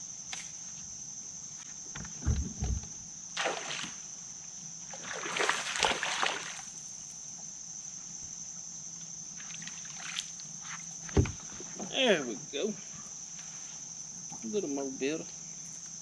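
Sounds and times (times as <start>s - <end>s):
high insect drone: 0.0s - 16.0s
fish splashing in water: 3.4s - 4.0s, 4.9s - 6.7s.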